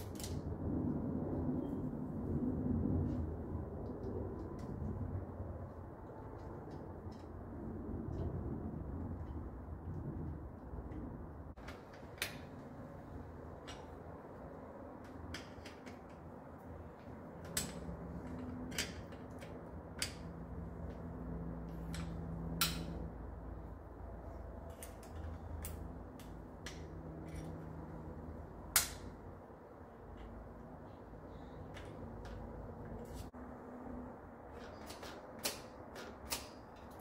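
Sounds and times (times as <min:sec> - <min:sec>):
low hum: 0:00.0 - 0:34.6
metal clicks of brake parts: 0:28.7 - 0:29.1.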